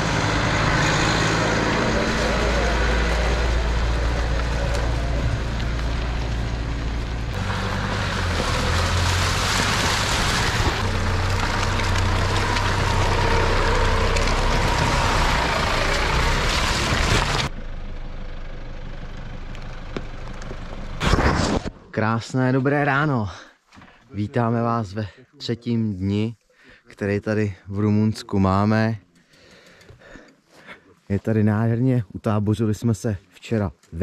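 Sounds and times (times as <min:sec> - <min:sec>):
pickup engine hum: 0:00.0 - 0:21.0
tyre and road noise: 0:00.0 - 0:22.0.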